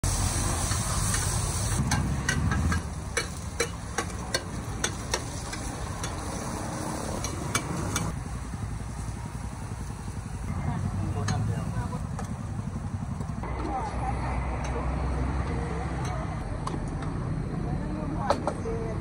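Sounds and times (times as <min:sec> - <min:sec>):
food sizzling: 0:00.0 - 0:13.4
metal utensils scraping a pan: 0:00.7 - 0:08.1.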